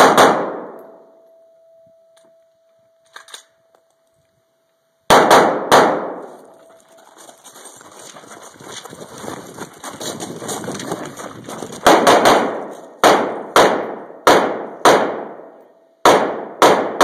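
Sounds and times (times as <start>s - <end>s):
gunshots with echo: 0.0s - 1.0s, 5.1s - 6.4s, 11.8s - 17.0s
footsteps crunching on gravel: 6.2s - 13.0s.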